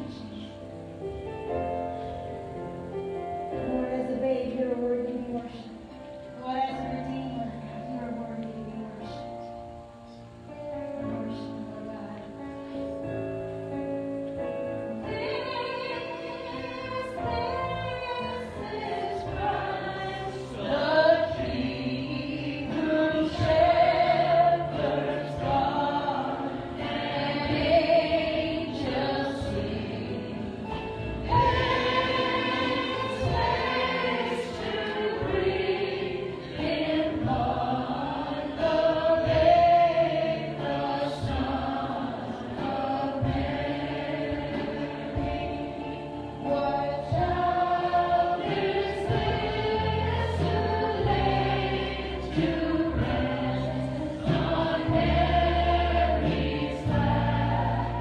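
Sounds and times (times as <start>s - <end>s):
people singing: 14.9s - 58.0s.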